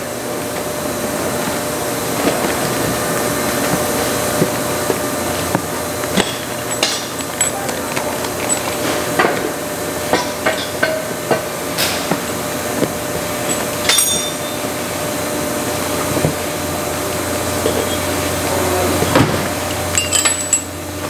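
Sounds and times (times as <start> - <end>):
parts clicking and clinking: 4.4 - 14.7, 19.9 - 20.7
plastic bag crinkling: 6.0 - 9.2.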